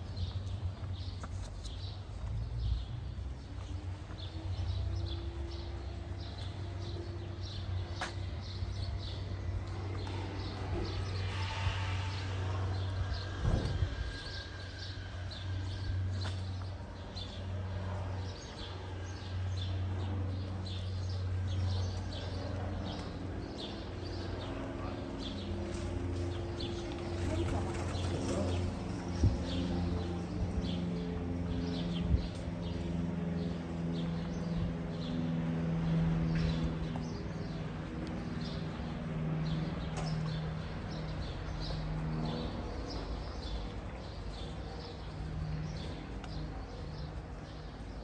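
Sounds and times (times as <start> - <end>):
footsteps on brick pavement: 0.0 - 48.0
low hum of street ambience: 0.0 - 48.0
louder thump: 13.4 - 14.0.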